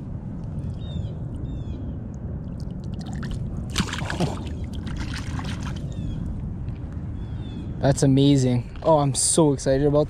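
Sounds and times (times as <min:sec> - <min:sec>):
water splashing and sloshing: 0:02.4 - 0:06.1.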